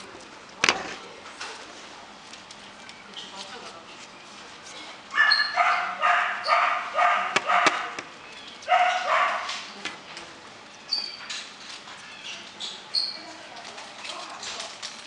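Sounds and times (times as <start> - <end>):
puppy barking: 5.1 - 9.7.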